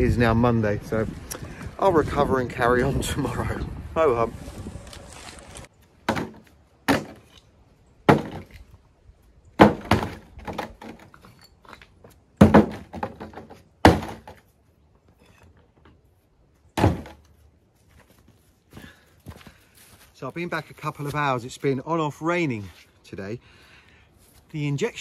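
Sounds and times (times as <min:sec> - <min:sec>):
bricks dropped into wheelbarrow: 0:09.6 - 0:14.5.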